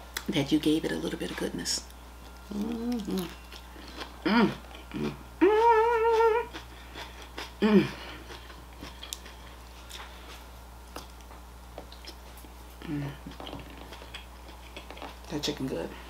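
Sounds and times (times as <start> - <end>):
woman humming mmm: 2.5 - 3.5, 4.2 - 6.7, 7.6 - 8.3, 12.8 - 13.4.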